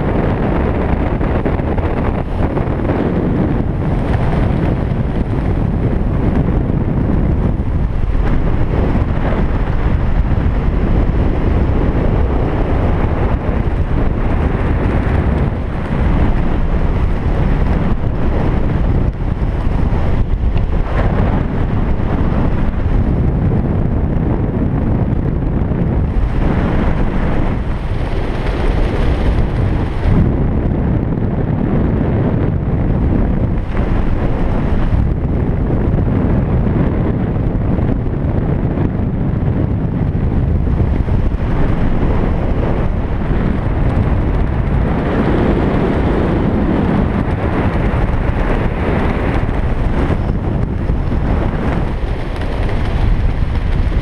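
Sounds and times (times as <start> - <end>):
wind roar on microphone: 0.0 - 54.0.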